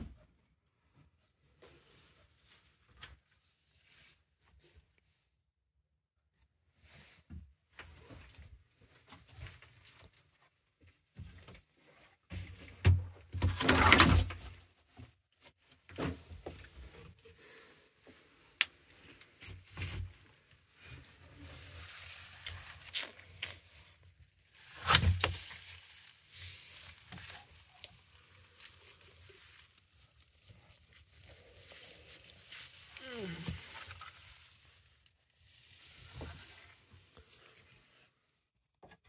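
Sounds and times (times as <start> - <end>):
hand rustling in dry leaves: 24.4 - 37.6.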